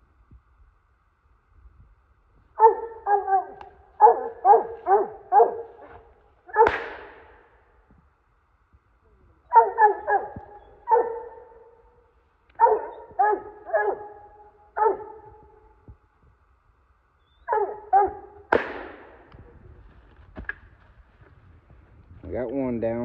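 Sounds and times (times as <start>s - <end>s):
dog barking: 2.6s - 6.8s, 9.5s - 11.8s, 12.6s - 15.6s, 17.5s - 18.4s
gunshot: 6.6s - 7.4s, 18.5s - 19.4s.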